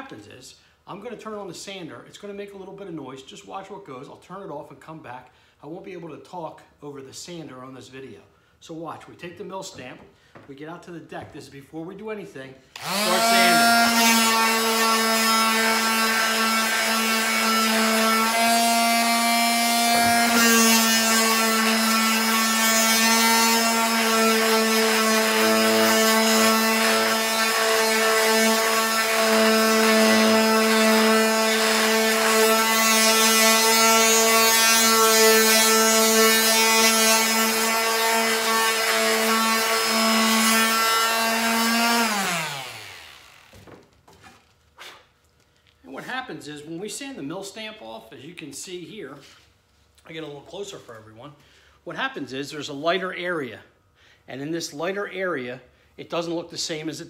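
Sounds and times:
sander winding down: 12.8s - 43.7s
palm sander sanding wood: 12.8s - 45.1s.

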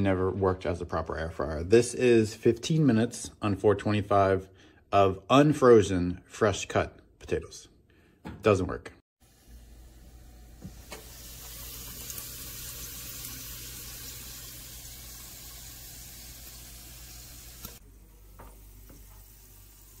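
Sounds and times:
air fryer hissing and humming: 9.2s - 20.0s.

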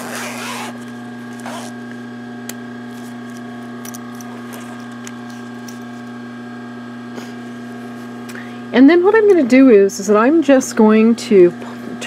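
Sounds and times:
zipper click: 0.0s - 1.9s
low electrical hum: 0.0s - 12.0s.

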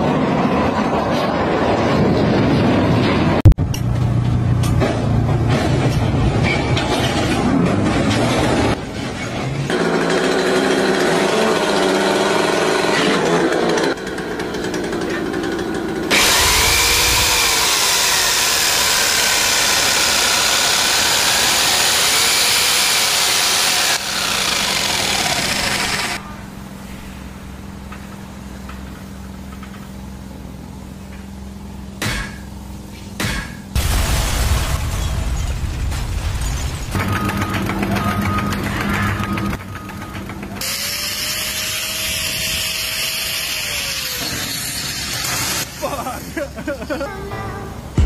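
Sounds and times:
chainsaw cutting wood: 9.7s - 26.2s, 40.6s - 45.7s
steady hum: 24.0s - 37.7s.

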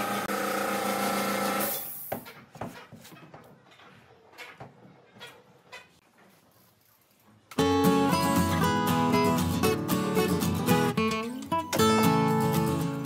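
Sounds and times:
strummed acoustic guitar music: 7.6s - 13.0s.

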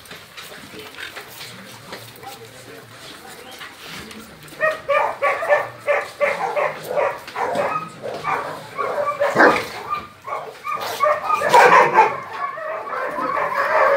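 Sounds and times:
dogs barking: 4.5s - 13.9s.

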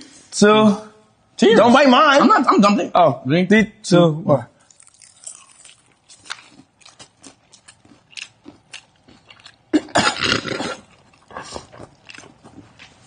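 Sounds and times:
crunchy chewing: 4.6s - 13.0s.

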